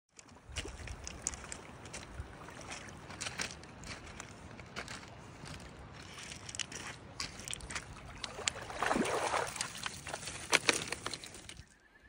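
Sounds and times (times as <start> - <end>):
dog splashing in water: 8.1 - 11.4.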